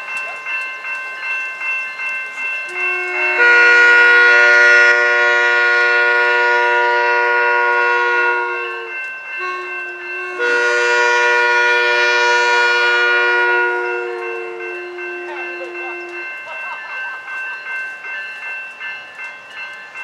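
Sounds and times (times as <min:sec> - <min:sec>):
train air horn blasts: 0:02.7 - 0:16.3.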